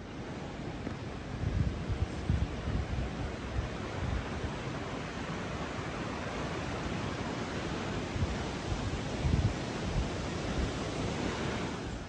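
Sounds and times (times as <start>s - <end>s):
river rushing: 0.0s - 12.0s
wind buffeting microphone: 0.1s - 12.0s.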